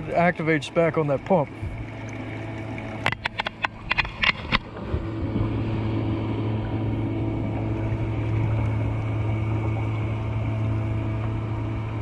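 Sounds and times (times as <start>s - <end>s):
bilge pump motor humming: 0.0s - 12.0s
sharp knocks and clicks: 2.8s - 4.7s.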